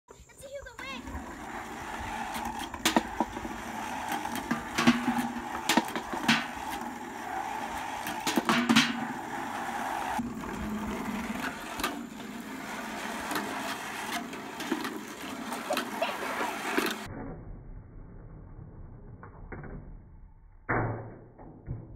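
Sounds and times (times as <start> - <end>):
golf balls rolling down gutters: 0.7 - 17.1
balls clacking together: 1.0 - 17.1.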